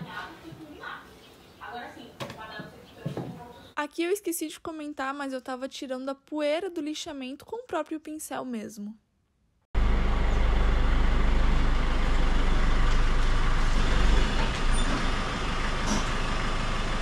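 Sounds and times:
diesel van engine rumbling: 9.8s - 17.0s.

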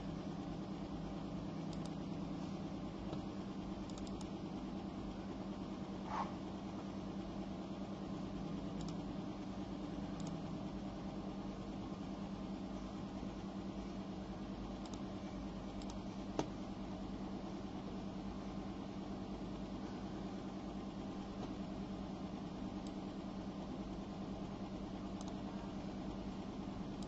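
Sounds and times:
low mechanical hum: 0.0s - 27.0s
sharp click: 1.7s - 2.0s, 3.8s - 4.3s, 8.8s - 9.0s, 10.2s - 10.4s.

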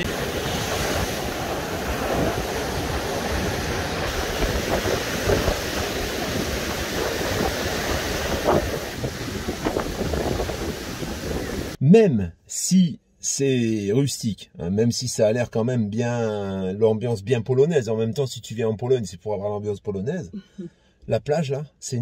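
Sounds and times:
sea surf rushing: 0.0s - 11.8s
wind rumbling on microphone: 0.0s - 11.8s.

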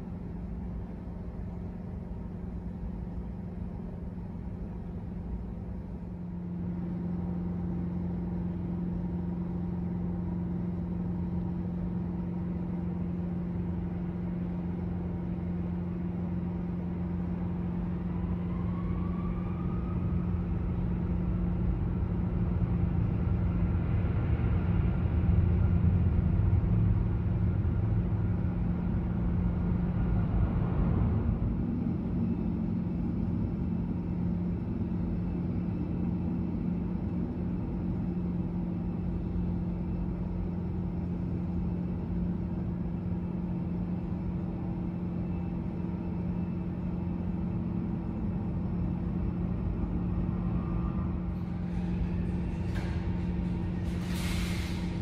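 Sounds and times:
jet engines whine: 0.0s - 55.0s
heavy rumble: 20.7s - 55.0s.

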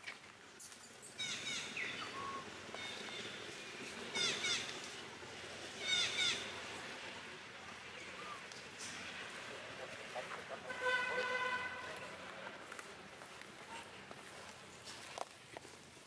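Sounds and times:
bird chirping: 0.9s - 4.7s.

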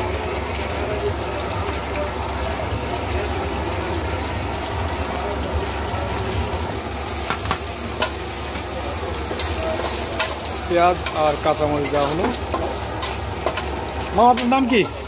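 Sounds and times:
food sizzling in oil: 0.0s - 15.0s
metal spatula scraping pan: 9.4s - 15.0s.

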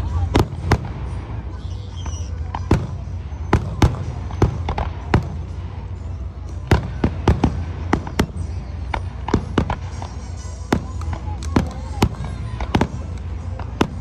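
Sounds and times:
fireworks bangs and cracks: 0.0s - 14.0s
steady low rumble: 12.0s - 14.0s.

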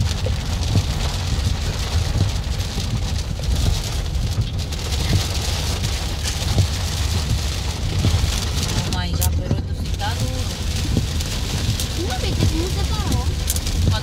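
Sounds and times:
rain pelting car windshield: 0.0s - 14.0s
road and engine rumble: 0.0s - 14.0s.

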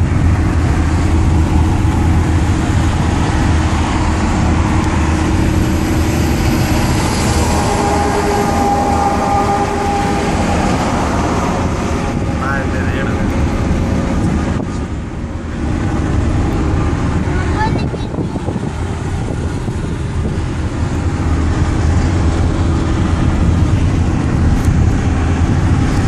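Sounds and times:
engine hum inside cab: 0.0s - 26.0s.

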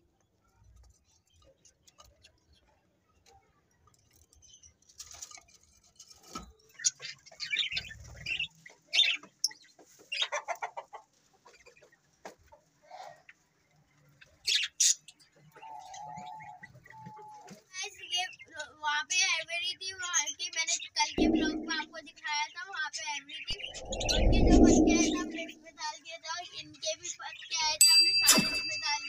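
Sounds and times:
birds chirping and screeching: 23.5s - 25.6s.

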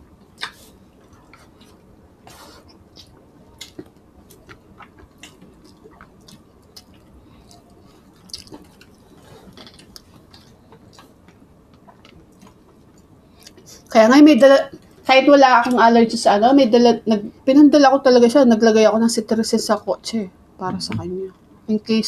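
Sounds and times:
chewing and lip smacks: 0.2s - 1.8s, 2.7s - 13.7s.

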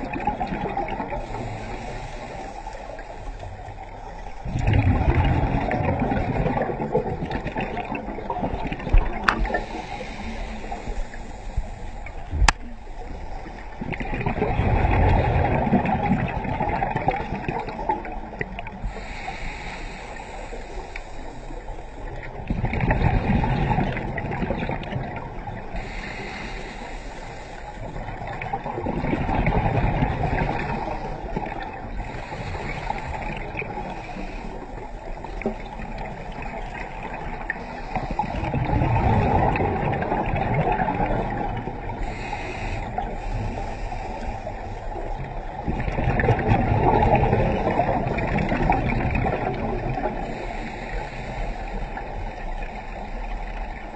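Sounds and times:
exhaled bubbles gurgling: 0.0s - 53.9s
regulator inhaling hiss: 1.2s - 3.3s, 9.3s - 13.6s, 18.9s - 22.2s, 25.8s - 27.9s, 42.0s - 44.8s, 50.2s - 52.1s.

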